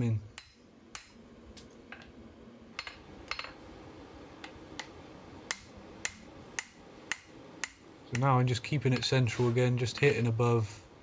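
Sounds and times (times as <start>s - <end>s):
hammer striking hot steel on anvil: 0.4s - 1.2s, 5.5s - 8.3s.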